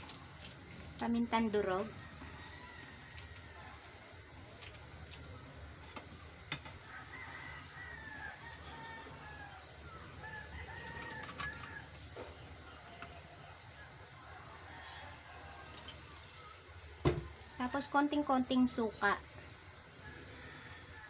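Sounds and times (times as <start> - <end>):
faint rooster crowing: 1.8 - 4.2, 6.7 - 18.0, 19.8 - 21.0.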